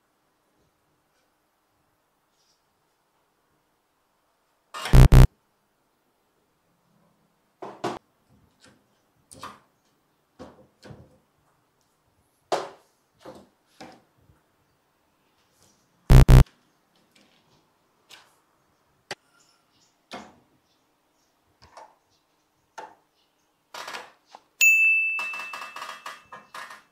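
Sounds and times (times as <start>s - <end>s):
double-buzz buzzer: 4.9s - 5.3s, 16.1s - 16.4s.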